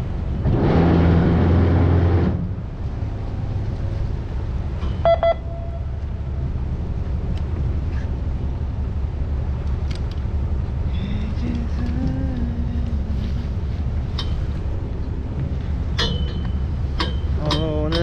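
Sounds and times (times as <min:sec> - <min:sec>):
boat engine low rumble: 0:00.0 - 0:18.0
electronic double beep: 0:05.0 - 0:05.9.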